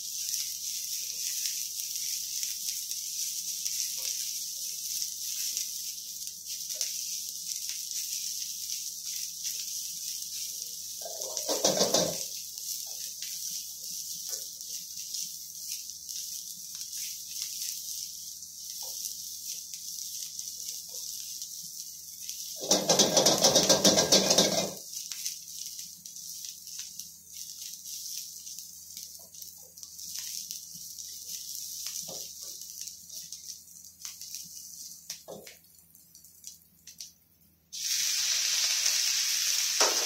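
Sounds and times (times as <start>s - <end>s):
loud sizzling burst: 0.0s - 24.9s, 37.7s - 40.0s
vegetables sizzling in a wok: 0.0s - 40.0s
spatula scraping a wok: 9.2s - 15.8s, 22.4s - 24.8s.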